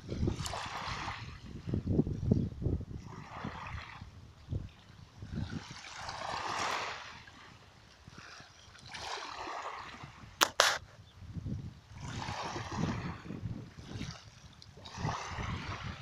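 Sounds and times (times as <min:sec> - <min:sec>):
small waves lapping: 0:00.0 - 0:02.0, 0:02.8 - 0:11.0, 0:11.8 - 0:16.0
sharp clicks: 0:10.4 - 0:10.8.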